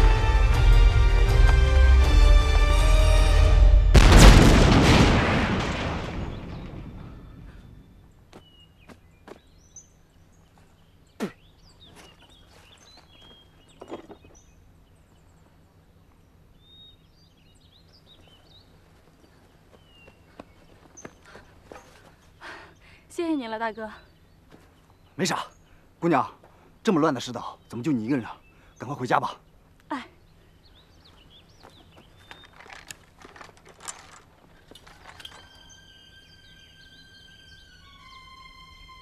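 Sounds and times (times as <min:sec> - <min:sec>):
landmine explosion: 0:03.8 - 0:08.0
birds chirping: 0:05.8 - 0:39.0.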